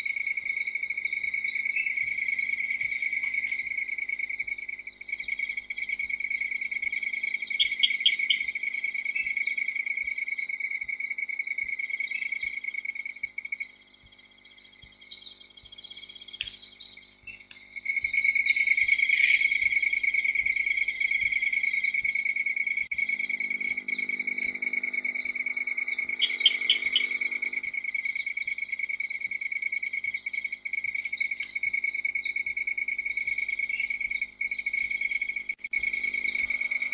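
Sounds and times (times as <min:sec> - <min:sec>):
insects trilling: 0:00.0 - 0:36.9
quick chirps: 0:14.0 - 0:28.6.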